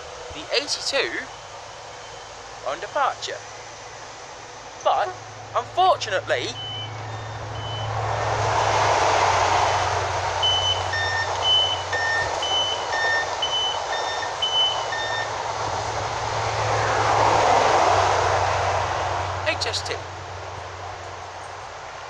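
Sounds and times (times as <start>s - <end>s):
electric train hum: 0.0s - 22.0s
two-tone electronic door beeps: 6.5s - 8.0s, 9.7s - 15.5s.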